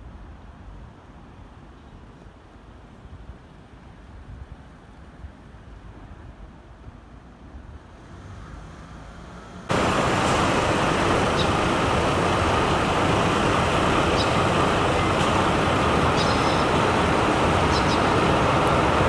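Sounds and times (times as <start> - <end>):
loud city traffic rush: 7.8 - 19.0.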